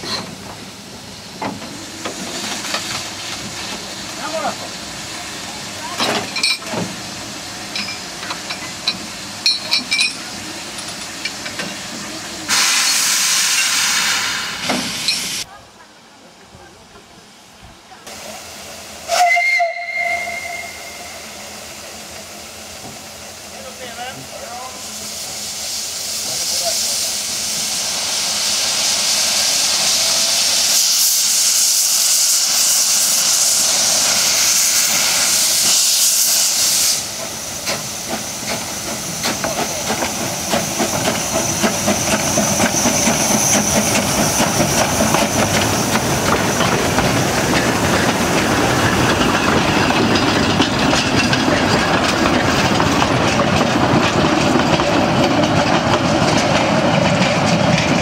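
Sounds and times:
steam locomotive venting steam: 0:00.0 - 0:15.6, 0:16.2 - 0:58.0
train wheels clattering: 0:32.0 - 0:58.0.

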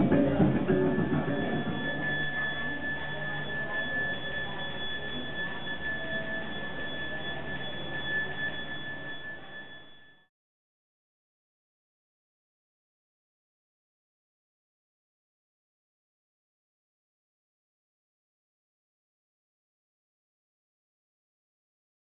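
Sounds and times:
high-pitched ringing tone: 0:00.0 - 0:10.3
low background murmur: 0:00.0 - 0:10.3.

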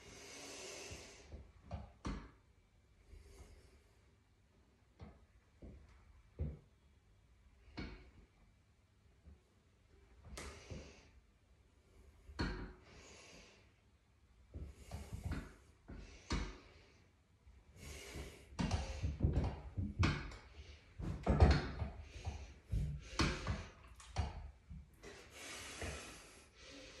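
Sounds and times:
person breathing: 0:00.0 - 0:01.4, 0:12.8 - 0:13.8, 0:14.6 - 0:19.2, 0:22.0 - 0:24.0, 0:24.9 - 0:27.0
knocks and thuds of gym machine: 0:18.6 - 0:24.5.

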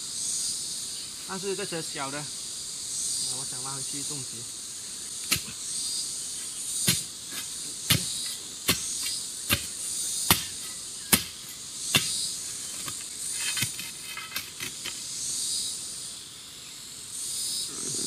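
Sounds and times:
insects hissing: 0:00.0 - 0:18.0
digging pole striking soil: 0:05.2 - 0:05.6, 0:06.8 - 0:15.0.

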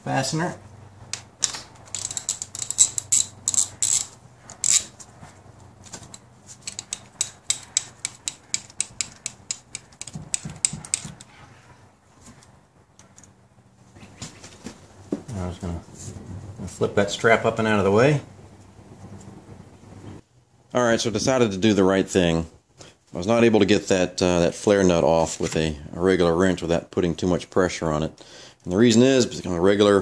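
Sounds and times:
ratchet wrench clicking: 0:01.4 - 0:04.9, 0:06.6 - 0:11.3.

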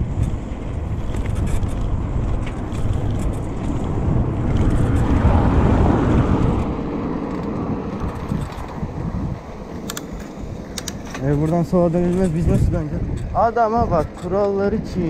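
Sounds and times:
wind rumble on microphone: 0:00.0 - 0:15.0
taxi passing: 0:02.6 - 0:13.1.

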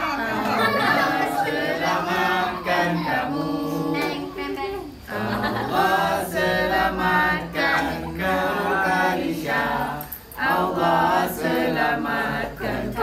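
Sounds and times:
group singing unaccompanied: 0:00.0 - 0:13.0.

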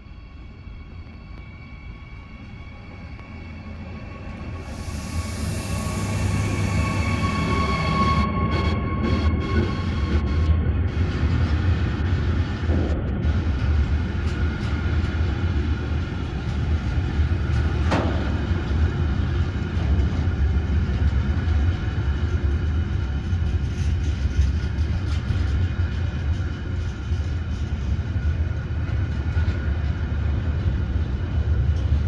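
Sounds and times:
freight train rolling past: 0:00.0 - 0:32.0.

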